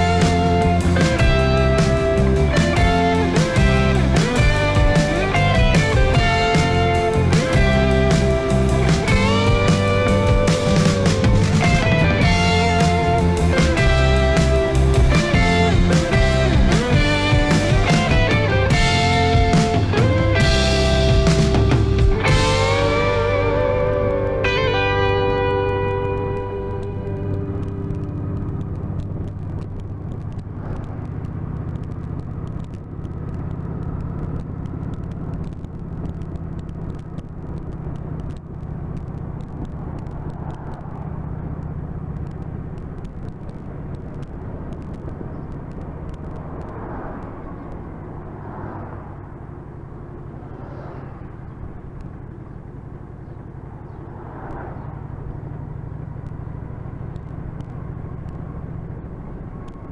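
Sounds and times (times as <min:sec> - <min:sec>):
motorcycle engine running: 0:00.0 - 0:59.9
wind and road noise: 0:00.0 - 0:59.9.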